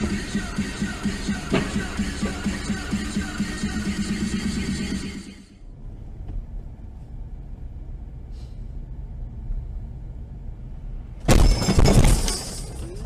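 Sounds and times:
car engine and tyres rumble: 0:00.0 - 0:11.4
car crash: 0:11.2 - 0:13.0.

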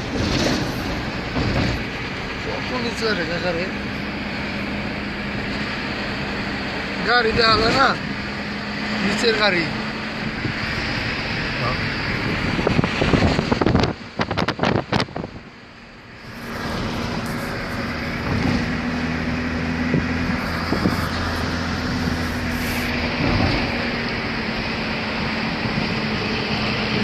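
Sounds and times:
car interior road noise: 0:00.0 - 0:27.0.

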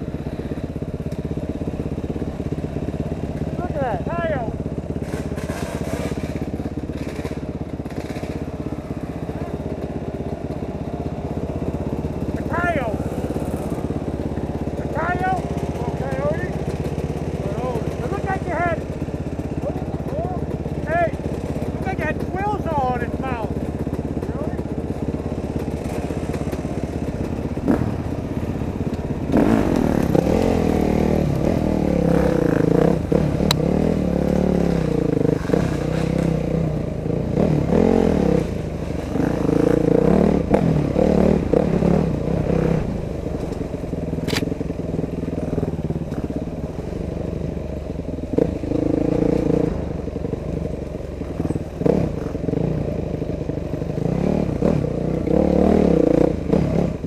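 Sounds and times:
dirt bike engine revving: 0:00.0 - 0:57.0
sharp clicks and clatter: 0:04.7 - 0:10.8, 0:12.2 - 0:36.3, 0:43.3 - 0:46.8.

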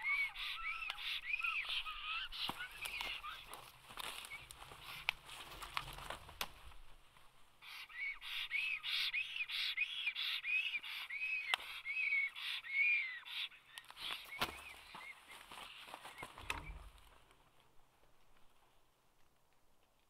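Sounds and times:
stork wheezy whistled calls: 0:00.0 - 0:05.2, 0:07.6 - 0:16.8.

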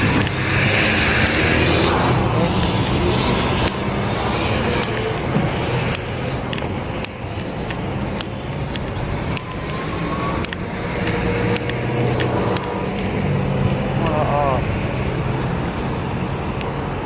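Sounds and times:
traffic passing on road: 0:00.0 - 0:17.0
sharp clicks: 0:05.8 - 0:13.2.

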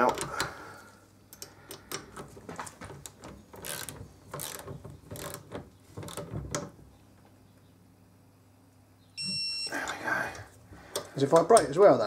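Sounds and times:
torque wrench ratchet clicking: 0:03.6 - 0:05.4.

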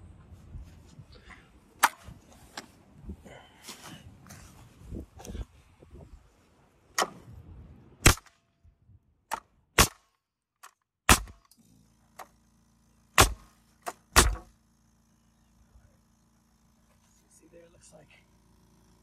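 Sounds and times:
nail gun firing: 0:01.8 - 0:02.1, 0:07.0 - 0:07.3, 0:08.0 - 0:08.4, 0:09.3 - 0:12.4, 0:13.1 - 0:14.6
air compressor humming: 0:11.2 - 0:19.0.

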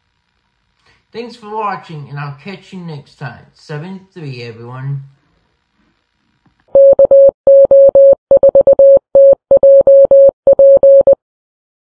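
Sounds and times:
morse code beeps: 0:06.8 - 0:11.2.

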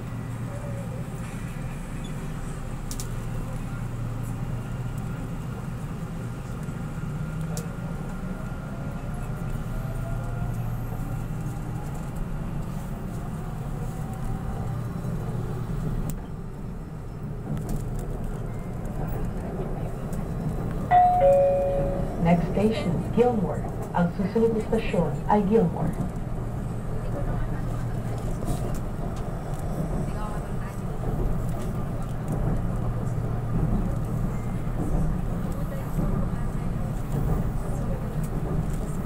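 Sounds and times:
train drive whine: 0:00.0 - 0:39.0
train running gear rumble: 0:00.0 - 0:39.0
chime tone: 0:20.9 - 0:22.2.

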